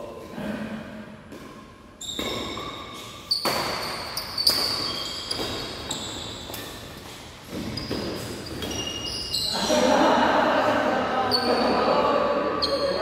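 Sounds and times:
racket striking shuttlecock: 0:01.3 - 0:08.7
sneakers squeaking on court: 0:01.3 - 0:09.7, 0:12.5 - 0:13.0.

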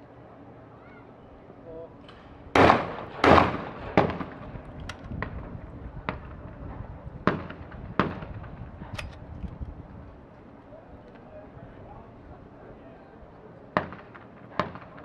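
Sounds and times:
faint gunshots: 0:02.1 - 0:09.0, 0:13.7 - 0:15.0
shotgun shot: 0:02.5 - 0:04.5, 0:07.2 - 0:09.2, 0:13.8 - 0:15.0.

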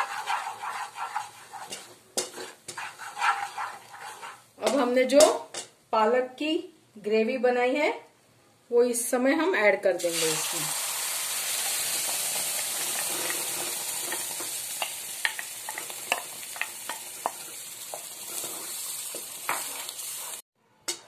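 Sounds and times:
wooden spatula stirring: 0:00.0 - 0:04.9, 0:11.6 - 0:21.0
food sizzling in hot oil: 0:10.0 - 0:21.0.

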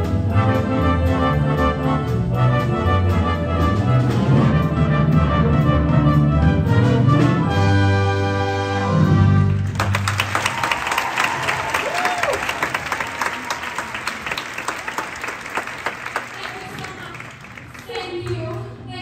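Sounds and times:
audience applause: 0:09.5 - 0:18.5.

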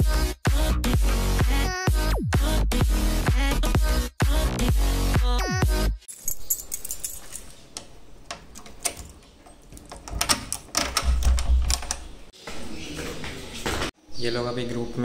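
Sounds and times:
keys jangling: 0:06.0 - 0:07.7
key clicking in a lock: 0:08.3 - 0:12.1.

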